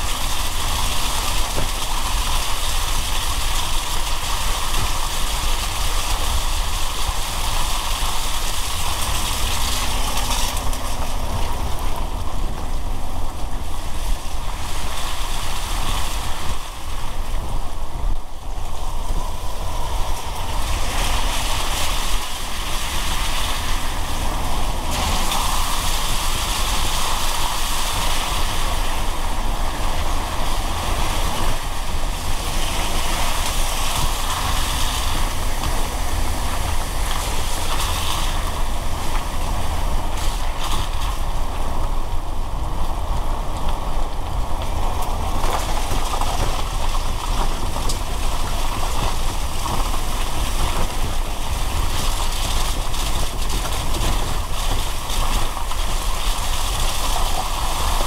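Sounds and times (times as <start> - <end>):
engine rumble: 0.0 - 58.0
tyres hissing on wet road: 0.0 - 58.0.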